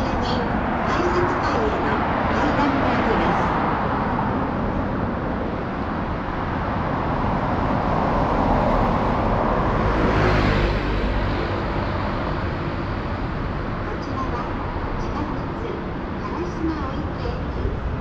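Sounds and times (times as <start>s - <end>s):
car passing by: 0.0s - 13.9s.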